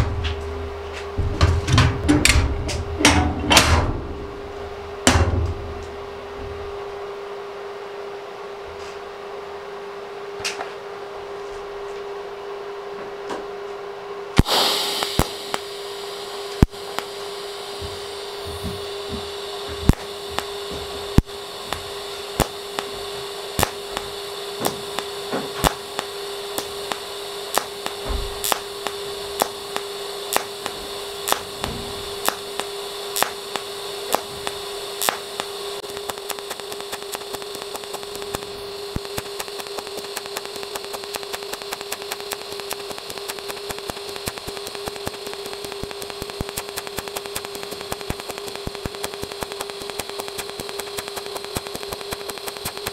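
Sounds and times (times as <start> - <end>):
welding arc crackling strike: 0.0 - 6.0, 14.4 - 52.9
welding arc humming: 0.0 - 7.6, 14.2 - 52.9
sharp pulsing ticks: 14.4 - 15.7, 22.4 - 22.9, 23.6 - 24.0, 25.0 - 52.9.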